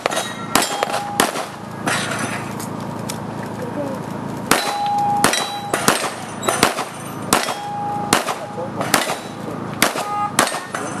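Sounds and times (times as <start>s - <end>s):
ringing tone: 0.0s - 1.4s, 4.6s - 8.6s
handgun shots: 0.0s - 1.6s, 4.5s - 10.8s.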